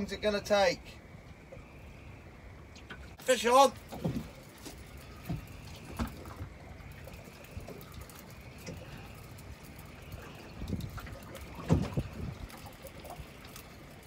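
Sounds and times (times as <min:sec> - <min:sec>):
water lapping against boat hull: 0:01.3 - 0:14.0
wind on microphone: 0:05.2 - 0:13.6.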